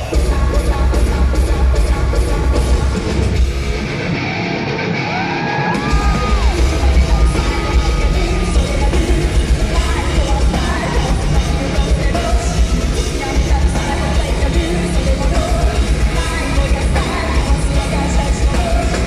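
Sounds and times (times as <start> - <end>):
live heavy metal band: 0.0 - 19.0
woman singing and yelling: 5.7 - 19.0.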